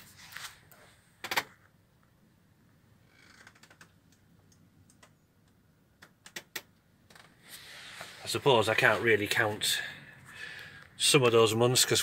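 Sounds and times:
soft rustle: 0.0 - 1.1, 7.4 - 10.4
small clicks and taps: 3.7 - 6.7.

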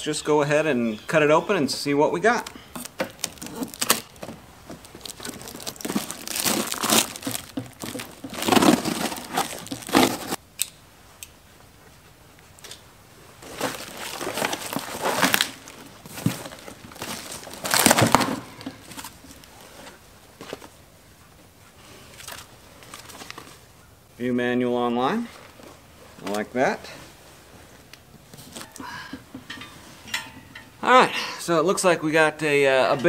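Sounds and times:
paper crumpling: 2.8 - 10.4
cardboard tearing: 2.9 - 10.4, 13.5 - 18.4.

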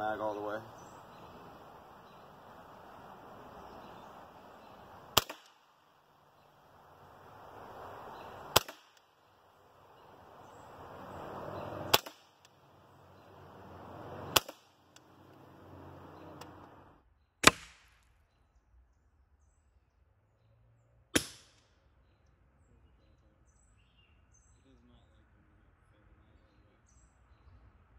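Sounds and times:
air rifle shots: 0.4 - 6.0, 6.6 - 9.2, 10.0 - 12.6, 13.3 - 16.8, 17.4 - 17.9, 21.2 - 21.6.

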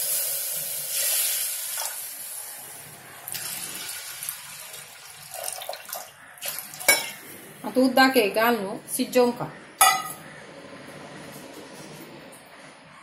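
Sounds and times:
water pouring into a pot: 0.0 - 2.6, 3.3 - 7.2.

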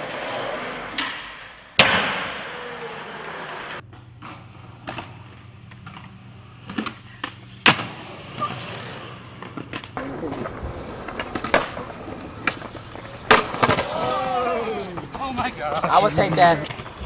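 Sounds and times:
skateboard wheels rolling: 0.0 - 17.0
skateboard clacking on concrete: 9.4 - 17.0.

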